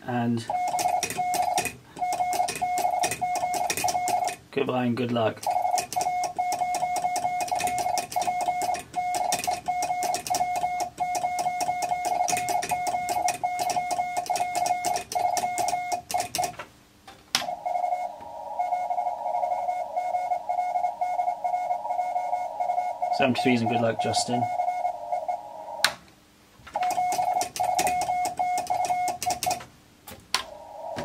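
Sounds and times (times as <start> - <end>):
morse code beeps: 0.5 - 4.4, 5.4 - 16.5, 17.4 - 25.8, 26.8 - 29.6
radio receiver hiss: 17.4 - 26.0, 30.4 - 31.0.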